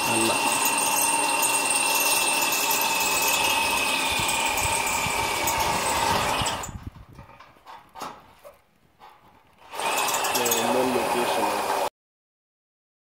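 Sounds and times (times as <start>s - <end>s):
cordless drill whining into metal: 0.0s - 7.3s, 9.6s - 11.9s.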